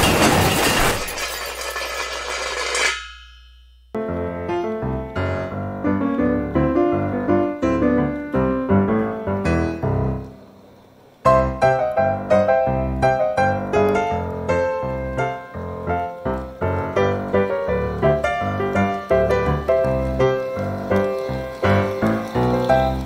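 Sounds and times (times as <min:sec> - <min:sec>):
crashing shattering noise: 0:00.0 - 0:03.7
piano background music: 0:03.9 - 0:23.0.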